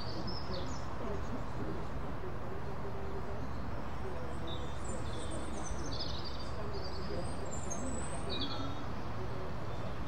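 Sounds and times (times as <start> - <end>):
faint distant voices: 0.0 - 10.0.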